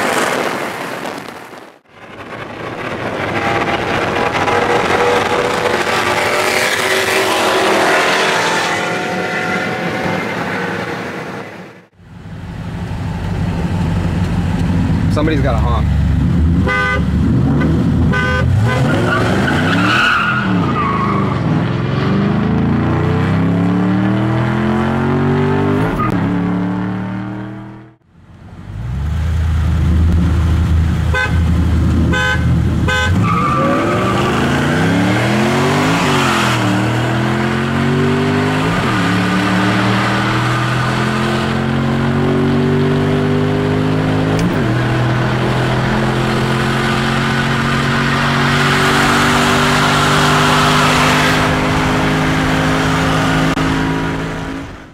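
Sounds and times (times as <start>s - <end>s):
car engines at full throttle: 0.0s - 54.9s
high engine whine: 1.8s - 18.2s.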